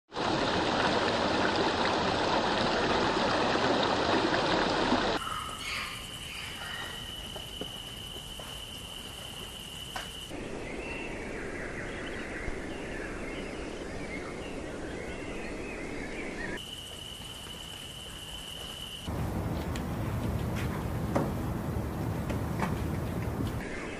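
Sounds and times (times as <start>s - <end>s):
running water rushing: 0.1s - 5.2s, 19.1s - 23.6s
birds chirping: 5.2s - 7.6s, 19.1s - 23.9s.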